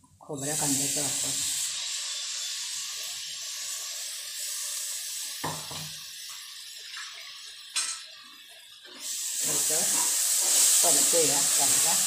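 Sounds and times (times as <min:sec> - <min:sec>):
masala sizzling in oil: 0:00.3 - 0:12.0
knock: 0:05.4 - 0:05.9.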